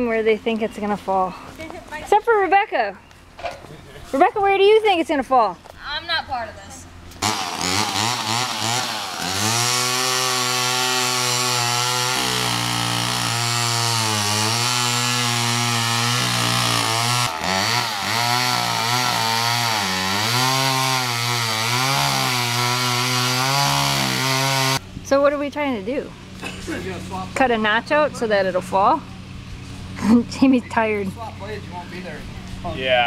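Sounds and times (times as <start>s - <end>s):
chainsaw cutting tree trunk: 7.2s - 24.8s.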